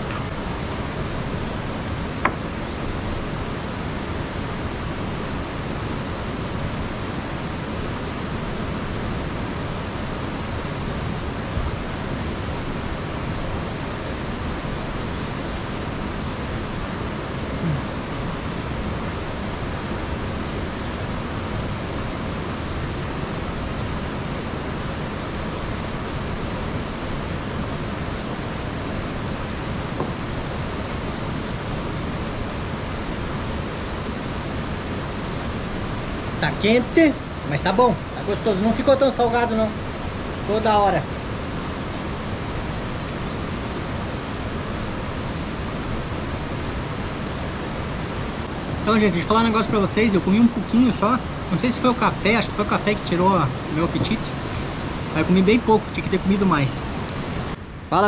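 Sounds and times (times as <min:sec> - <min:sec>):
steady rushing noise: 0:00.0 - 0:58.0.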